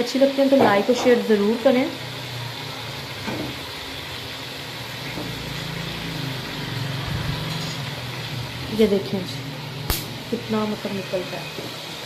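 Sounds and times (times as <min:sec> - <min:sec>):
food sizzling softly in a pot: 0:00.0 - 0:12.0.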